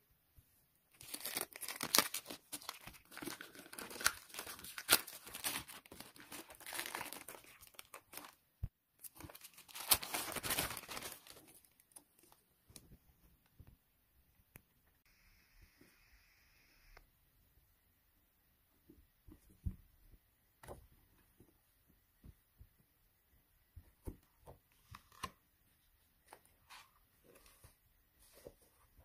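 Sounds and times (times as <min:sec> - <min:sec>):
plastic bag tearing and crinkling: 0:01.0 - 0:08.4, 0:09.1 - 0:11.6.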